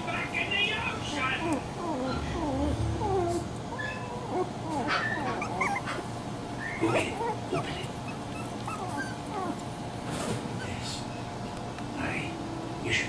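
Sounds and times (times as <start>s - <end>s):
puppies whimpering and yipping: 1.0s - 10.0s.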